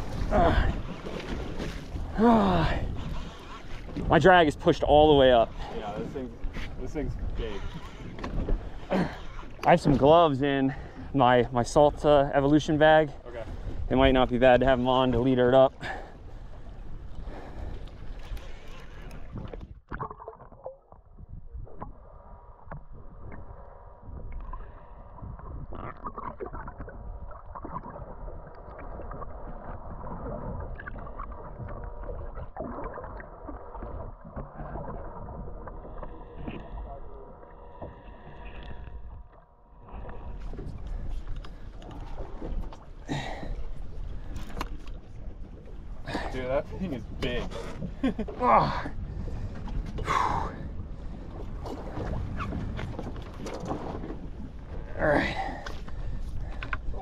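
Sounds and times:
water sloshing against boat hull: 0.0 - 22.0, 22.6 - 57.0
wind noise: 15.8 - 57.0.

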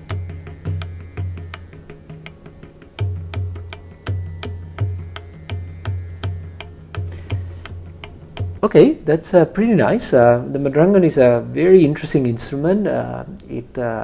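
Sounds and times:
crisp drum strokes with ringing tones: 2.7 - 9.1.

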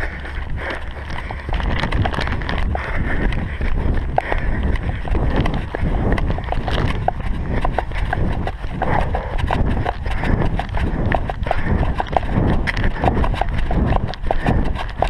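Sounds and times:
runner's footsteps: 0.0 - 15.0
wind rumbling on microphone: 0.0 - 15.0
plastic bag crinkling: 0.7 - 2.7.

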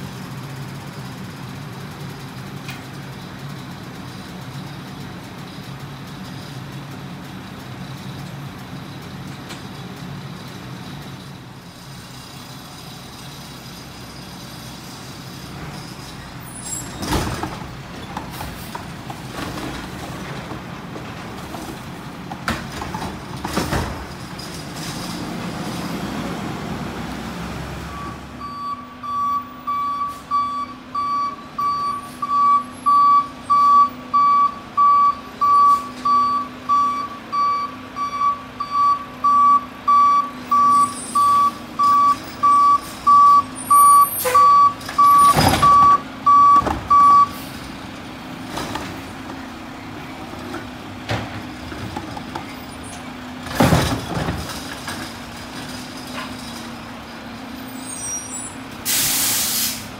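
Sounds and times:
garbage truck engine running: 0.0 - 59.9
truck reversing alarm beeping: 27.8 - 47.5.

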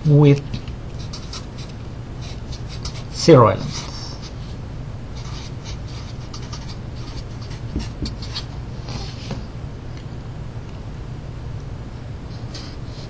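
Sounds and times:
steady low hum: 0.0 - 13.0
marker scratching on paper: 1.0 - 4.4, 5.2 - 9.4.

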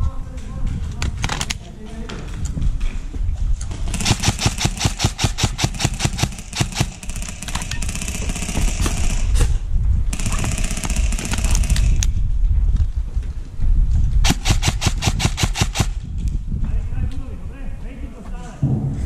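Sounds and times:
airsoft guns firing: 3.7 - 12.1, 14.2 - 16.0
low rumble on microphone: 8.6 - 10.2, 11.6 - 14.3, 16.0 - 19.0.

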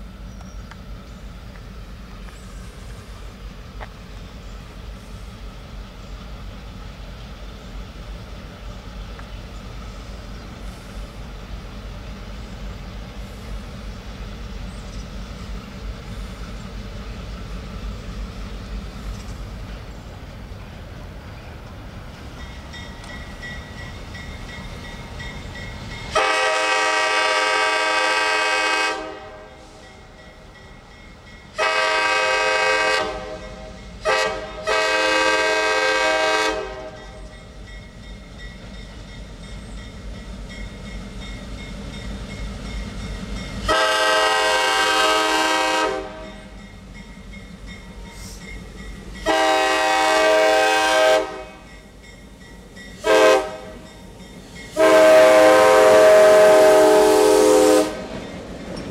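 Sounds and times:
diesel locomotive rumble: 0.0 - 58.9
train air horn blasts: 26.1 - 29.9, 31.6 - 37.2, 43.6 - 46.6, 49.2 - 51.7, 53.0 - 53.9, 54.7 - 58.2.

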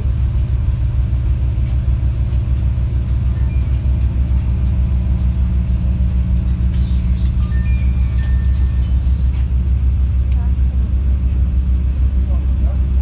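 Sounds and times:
train rumbling drone: 0.0 - 13.0.

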